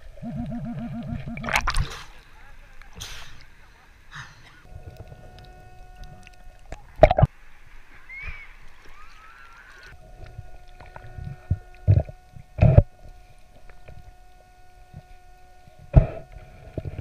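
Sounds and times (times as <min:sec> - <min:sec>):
faint underwater hum: 0:00.0 - 0:17.0
hiss: 0:03.0 - 0:03.4.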